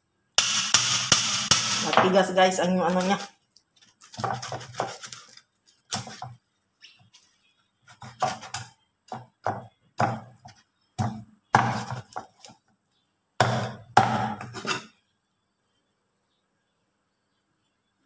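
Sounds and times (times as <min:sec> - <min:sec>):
cleaver chopping fish on wood: 0:04.1 - 0:05.2, 0:08.0 - 0:12.5, 0:13.4 - 0:14.5.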